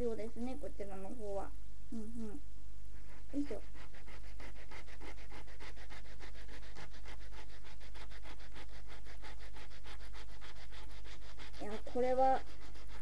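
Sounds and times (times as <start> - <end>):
steady electrical hum: 0.0 - 8.0
knife sawing through corn snack: 3.3 - 13.0.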